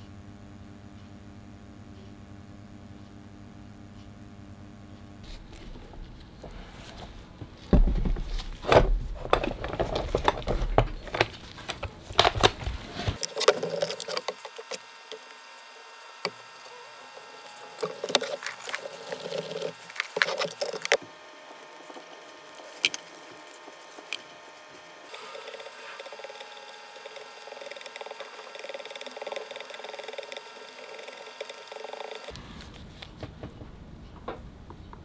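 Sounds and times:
plastic stick stirring: 9.6 - 32.4
resin pouring into cup: 17.8 - 21.0.

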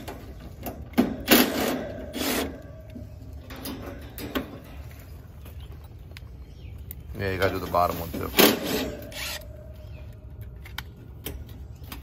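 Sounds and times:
cordless driver spinning screws: 9.1 - 9.4.

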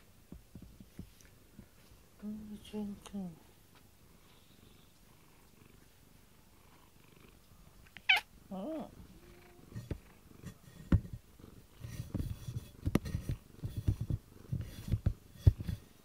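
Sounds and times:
cat purring: 4.1 - 16.0
cat chirping meow: 8.0 - 8.3.

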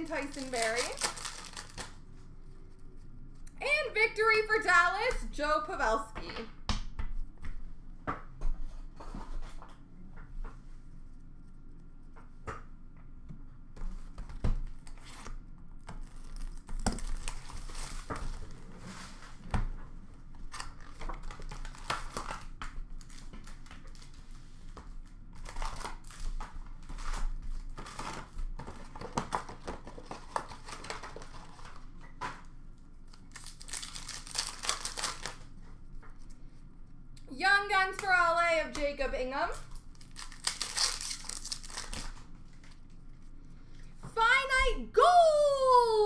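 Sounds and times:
card wrappers tearing and crinkling: 0.0 - 2.1, 14.9 - 18.5, 20.5 - 24.2, 25.4 - 31.8, 33.1 - 35.5, 39.6 - 42.8.

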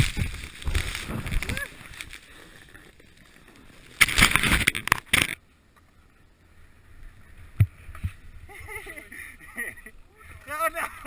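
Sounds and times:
snowboard carving through snow: 0.0 - 2.5.

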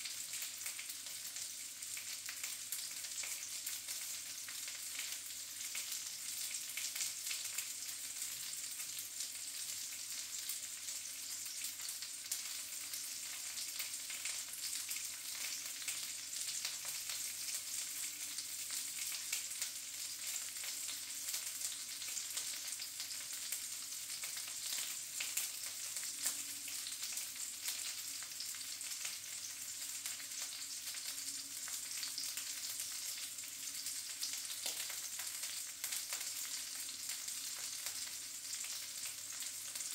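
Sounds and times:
sausages sizzling in a pan: 0.0 - 39.9.

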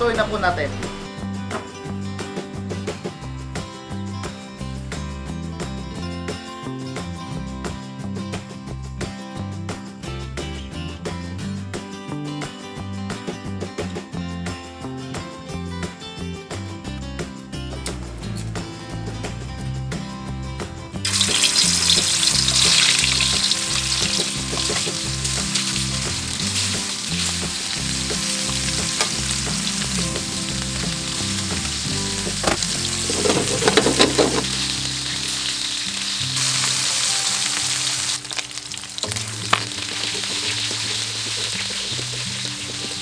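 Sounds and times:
meat sizzling in hot oil: 21.0 - 43.0
utensils clattering against wok: 21.1 - 27.7, 32.2 - 34.7.

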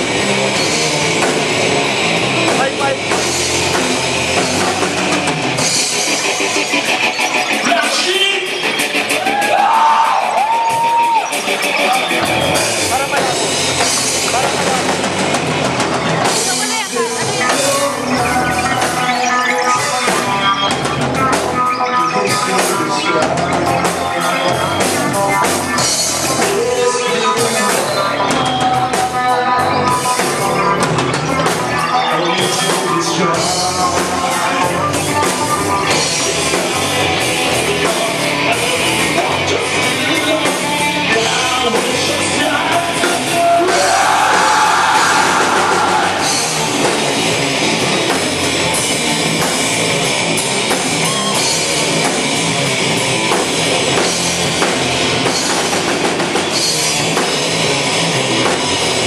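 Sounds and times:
drum kit beat: 0.0 - 59.0
rock band playing live: 0.0 - 59.0
person singing: 31.8 - 46.6.

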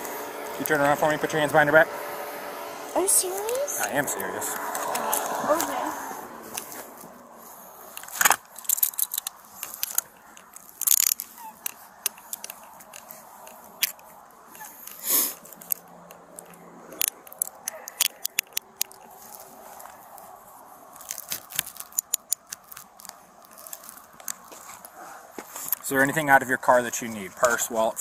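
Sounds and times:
handcuffs clicking: 7.9 - 19.4, 21.0 - 24.4
ratchet clicks: 8.0 - 14.0, 14.8 - 19.1, 21.0 - 24.4.

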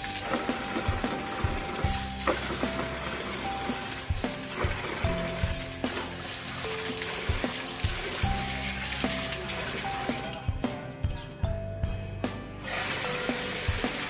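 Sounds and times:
tap water pouring into bucket: 0.0 - 10.4, 12.6 - 14.0
background music: 0.0 - 14.0
water splashing over hands: 5.5 - 10.4.

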